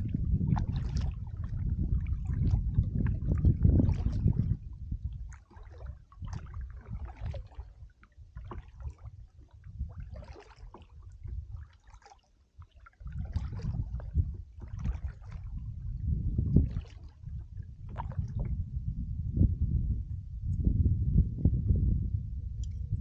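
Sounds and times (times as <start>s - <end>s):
low rumble: 0.0s - 5.3s, 15.4s - 23.0s
paddle splashing water: 0.0s - 18.6s.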